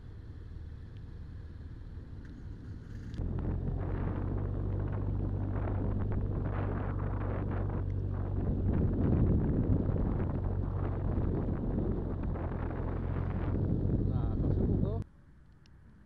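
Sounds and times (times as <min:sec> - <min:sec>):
motorcycle engine running: 0:00.0 - 0:15.0
wind rushing over microphone: 0:02.7 - 0:15.0.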